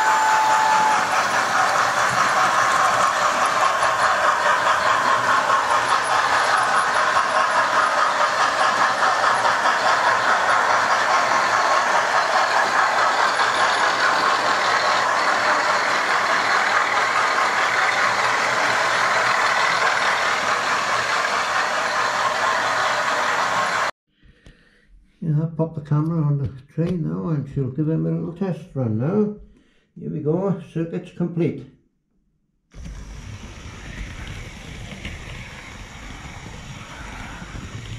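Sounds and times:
model train motors whirring: 0:00.0 - 0:23.9, 0:32.8 - 0:37.9.

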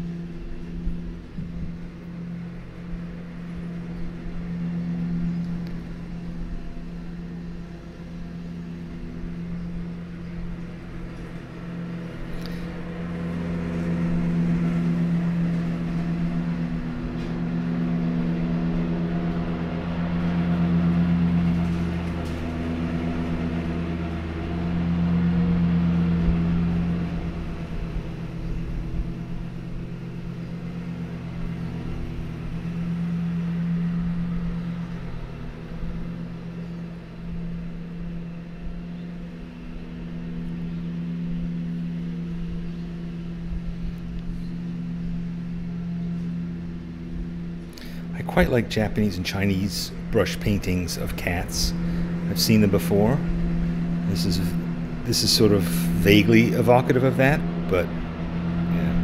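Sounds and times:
low droning hum: 0:00.0 - 0:59.0.

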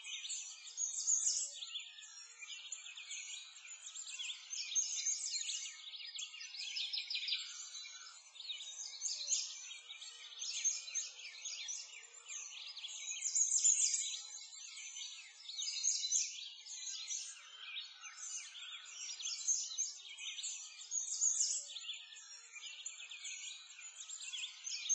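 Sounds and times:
songbirds chirping and twittering: 0:00.0 - 0:24.9.

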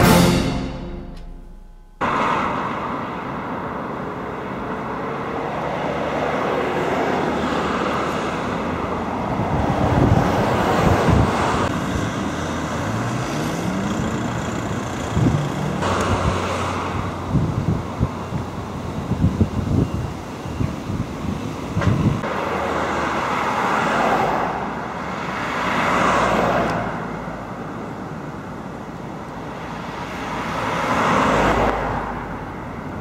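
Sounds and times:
road traffic passing: 0:00.0 - 0:33.0
wind rumbling on microphone: 0:09.2 - 0:11.7, 0:16.1 - 0:22.3
vehicle engine pulling away: 0:11.8 - 0:17.4.

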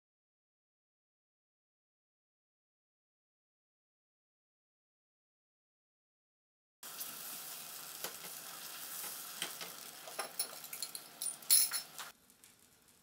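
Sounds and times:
omelette sizzling in a frying pan: 0:06.8 - 0:13.0.

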